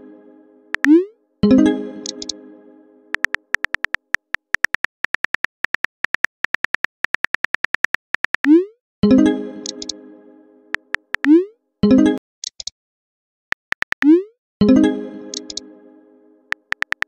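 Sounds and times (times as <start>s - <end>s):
phone keyboard clicks: 0.8s - 1.0s, 2.0s - 2.3s, 3.2s - 8.5s, 9.6s - 9.9s, 10.8s - 11.3s, 13.5s - 14.1s, 15.4s - 15.6s, 16.5s - 17.0s.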